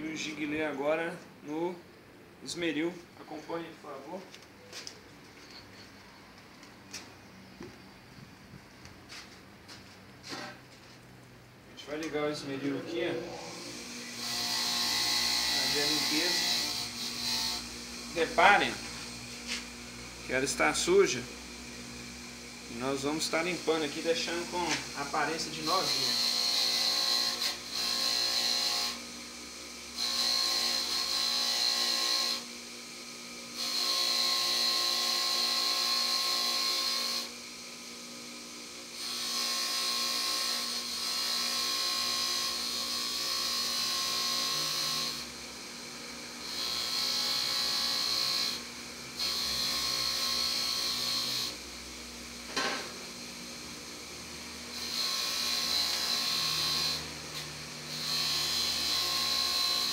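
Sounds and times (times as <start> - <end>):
bench grinder motor hum: 12.8 - 59.9.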